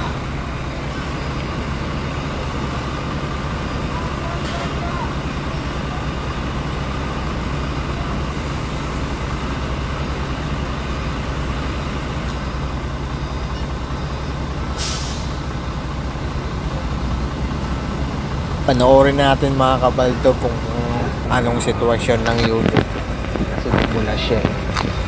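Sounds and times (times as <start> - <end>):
diesel engine idling: 0.0 - 25.0
hissing air burst: 14.8 - 15.4.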